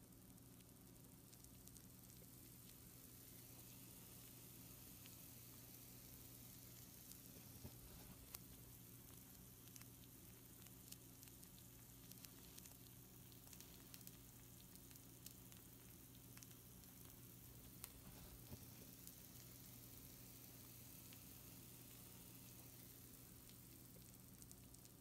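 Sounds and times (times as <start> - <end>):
food sizzling on baking sheet: 0.0 - 25.0
small crackles and pops: 0.0 - 25.0.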